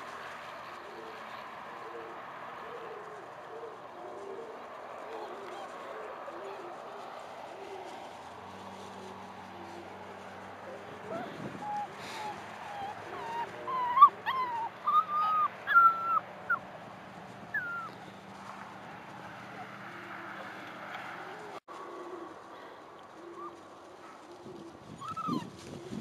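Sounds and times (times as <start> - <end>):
puppies yelping: 3.1 - 16.7, 17.5 - 18.1, 25.0 - 25.6
puppies whimpering: 3.7 - 16.6, 17.5 - 18.1, 25.0 - 26.0.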